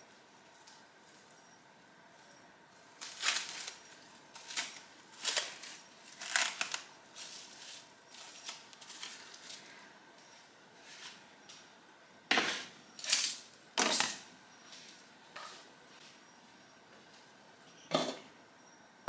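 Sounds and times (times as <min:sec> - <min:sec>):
cling film crinkling: 0:02.8 - 0:09.7.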